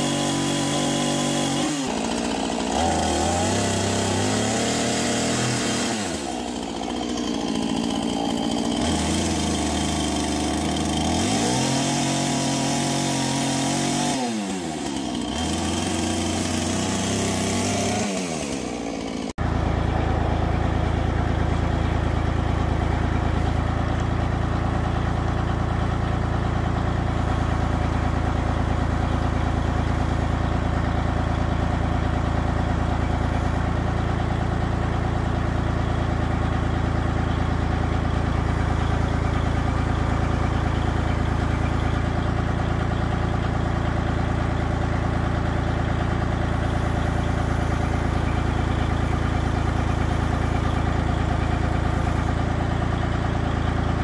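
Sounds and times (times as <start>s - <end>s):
engine idling: 0.0s - 54.0s.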